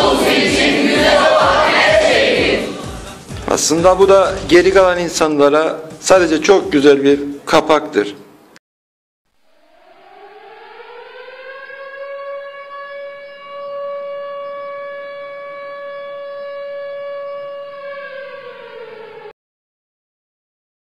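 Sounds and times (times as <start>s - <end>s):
siren wailing: 9.4s - 19.4s.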